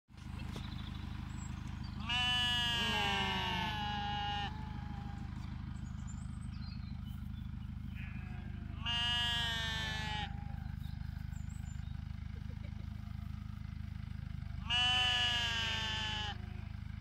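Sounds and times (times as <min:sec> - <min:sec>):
tractor diesel engine idling: 0:00.1 - 0:17.0
sheep bleating: 0:02.0 - 0:05.4, 0:07.9 - 0:10.7, 0:14.6 - 0:16.8.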